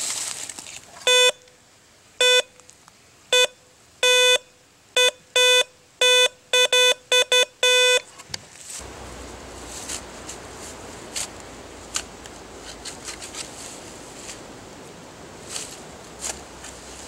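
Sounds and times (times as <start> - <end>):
metal detector beeping: 1.1 - 1.5, 2.2 - 2.5, 3.4 - 4.4, 5.0 - 8.1.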